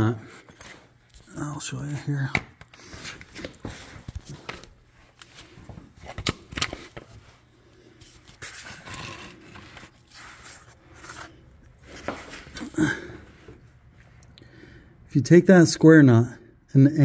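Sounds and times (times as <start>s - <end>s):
phone handling scrapes: 8.1s - 12.6s.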